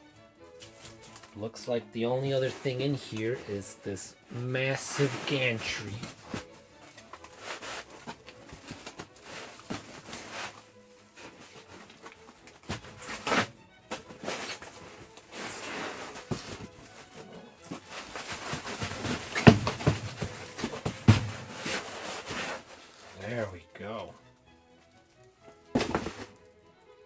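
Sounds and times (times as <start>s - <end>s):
handling bumps: 4.5s - 22.8s, 25.6s - 26.5s
foam packing rubbing: 4.5s - 23.4s.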